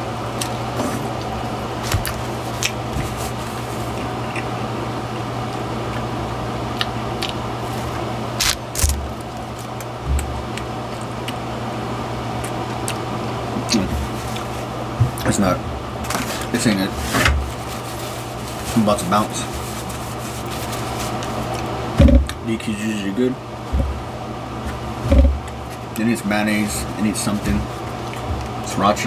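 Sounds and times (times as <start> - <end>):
steady low hum: 0.0 - 29.0
biting and chewing food: 0.4 - 11.6, 12.3 - 14.5, 27.8 - 28.7.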